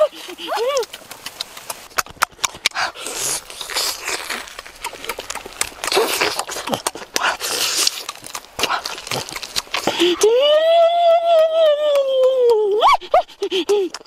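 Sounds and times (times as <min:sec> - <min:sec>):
hissy slurps: 0:00.0 - 0:10.3
lip smacking: 0:00.0 - 0:14.0
wet chewing: 0:00.0 - 0:14.0.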